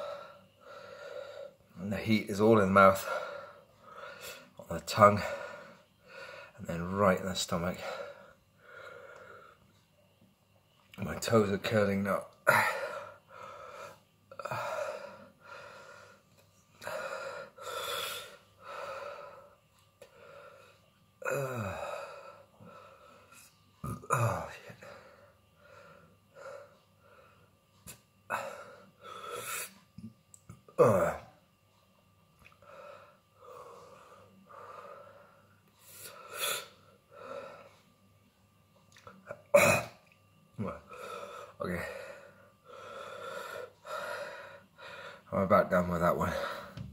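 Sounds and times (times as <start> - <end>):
man breathing hard: 0.0 - 1.6, 12.5 - 16.2, 16.8 - 23.4, 40.9 - 45.3.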